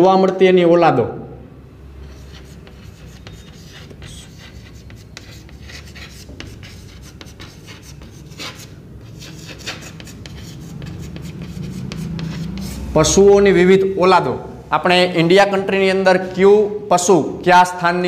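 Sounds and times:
chalk scratching on chalkboard: 2.0s - 13.2s, 15.5s - 16.8s.

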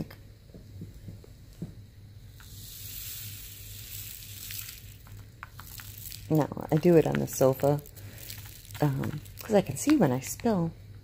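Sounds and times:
tiny beads trickling into plastic: 2.3s - 10.4s.

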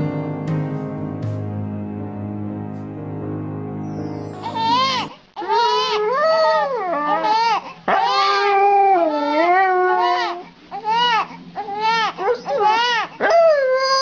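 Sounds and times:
music: 0.0s - 5.1s
infant crying: 4.4s - 13.2s.

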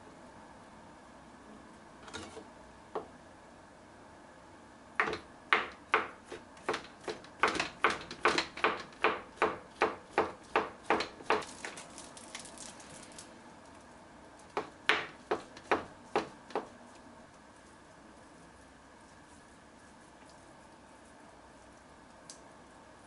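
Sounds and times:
knife chopping on plastic board: 5.0s - 11.5s, 14.5s - 16.7s.

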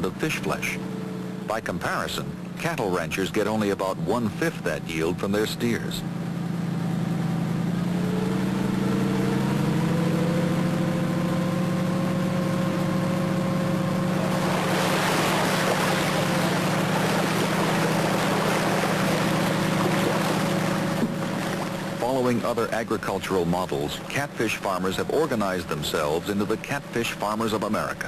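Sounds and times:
engine running: 0.0s - 28.0s
water splashing and churning: 13.8s - 28.0s.

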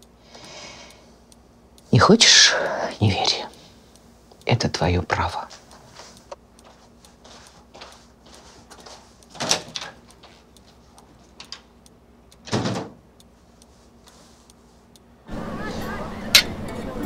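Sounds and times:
footsteps on hard floor: 5.5s - 11.2s
glass-paned door opening and closing: 9.4s - 10.0s, 12.4s - 13.0s.

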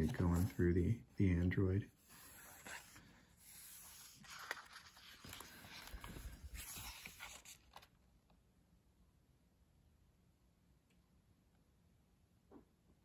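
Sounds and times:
book pages turning: 0.0s - 8.0s.

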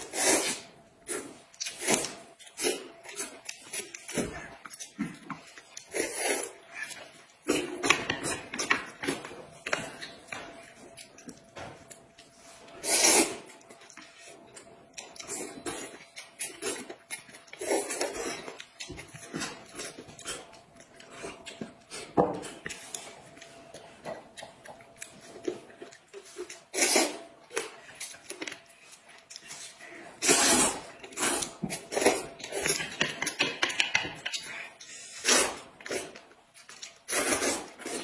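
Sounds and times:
people slurping noodles: 5.8s - 6.8s, 30.2s - 32.2s.

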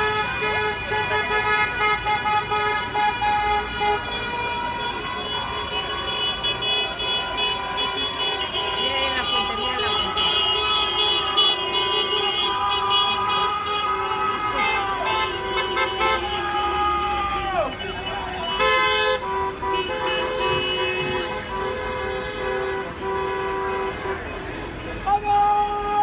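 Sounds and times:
car horns honking: 0.0s - 26.0s
street noise: 0.0s - 26.0s
voices: 4.7s - 21.3s.

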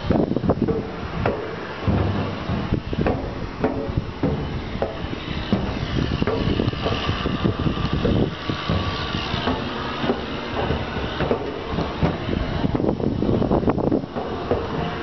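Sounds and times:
footsteps on metal stairs: 0.0s - 15.0s
low rumble: 0.0s - 15.0s.

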